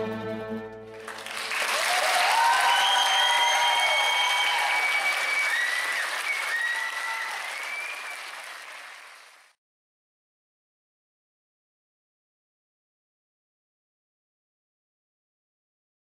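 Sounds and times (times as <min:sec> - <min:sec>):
audience applauding: 0:00.8 - 0:09.6
cheers and whistles: 0:01.2 - 0:09.4.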